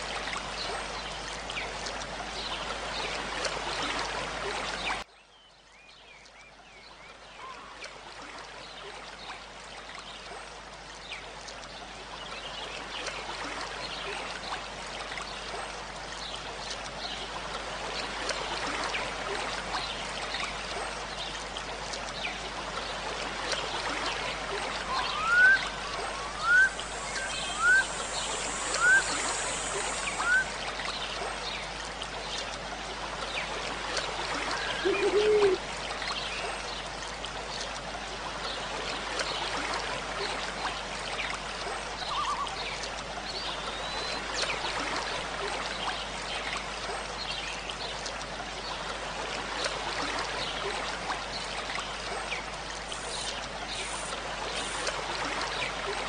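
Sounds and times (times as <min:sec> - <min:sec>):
flowing water: 0:00.0 - 0:56.0
low wavering call: 0:24.8 - 0:30.6, 0:34.6 - 0:35.6.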